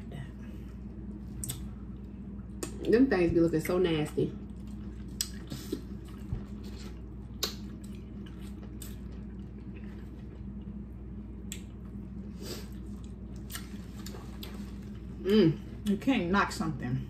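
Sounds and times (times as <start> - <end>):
steady low hum: 0.0 - 17.0
wet chewing and lip-smacking: 1.3 - 2.9, 4.4 - 10.8, 11.4 - 12.0, 12.7 - 15.0.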